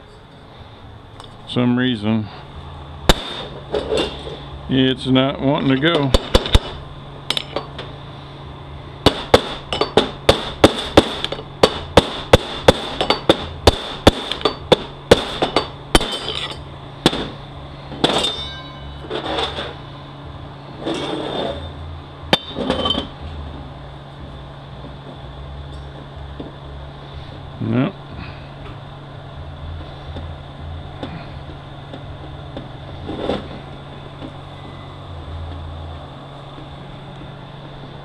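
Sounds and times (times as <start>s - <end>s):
metal clattering: 18.0s - 19.8s.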